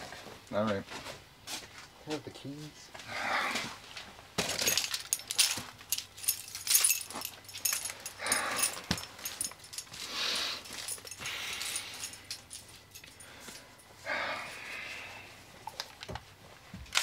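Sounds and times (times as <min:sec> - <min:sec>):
man exhaling breathily: 0:13.2 - 0:15.4.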